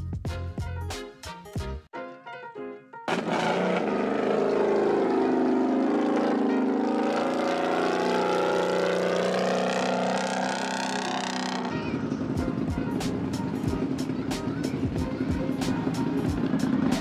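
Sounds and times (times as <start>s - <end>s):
music: 0.0s - 3.1s, 11.8s - 17.0s
off-road vehicle engine revving: 3.1s - 12.6s.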